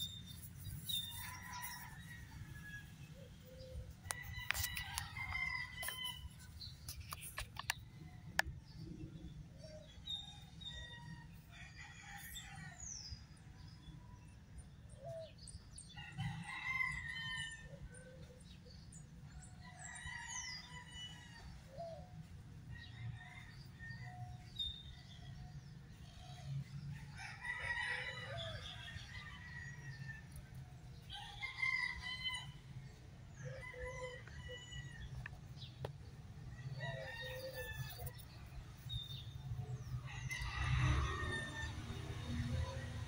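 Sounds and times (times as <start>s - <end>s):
rooster crowing: 40.1s - 42.7s.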